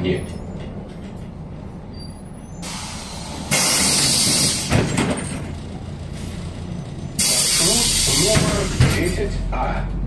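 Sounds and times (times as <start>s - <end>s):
bus air brakes hissing: 2.0s - 5.1s, 7.1s - 9.1s.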